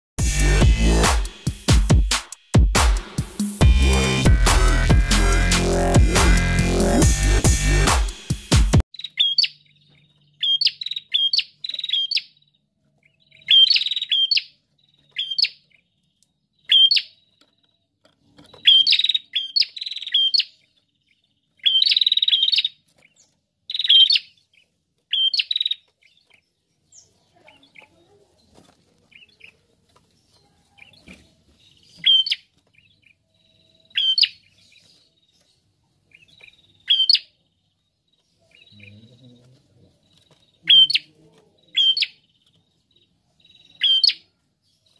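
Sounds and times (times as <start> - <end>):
bird chirping sharply: 8.9 - 12.6, 13.2 - 17.4, 18.4 - 20.7, 21.6 - 26.2, 31.7 - 34.8, 36.1 - 37.4, 40.6 - 42.3, 43.5 - 44.4.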